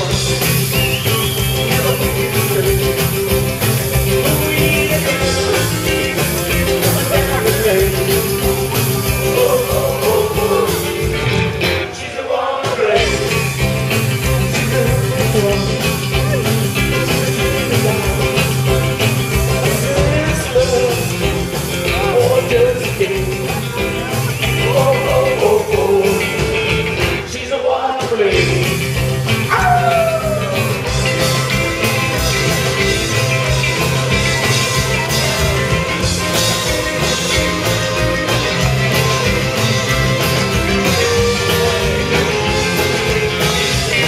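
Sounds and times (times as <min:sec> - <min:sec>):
man singing: 0:00.0 - 0:11.2, 0:11.8 - 0:31.5
rock band playing: 0:00.0 - 0:44.0.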